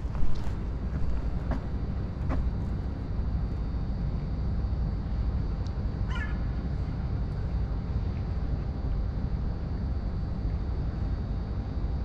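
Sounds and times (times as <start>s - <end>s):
faint footsteps: 0.0s - 2.8s
low outdoor rumble: 0.0s - 12.0s.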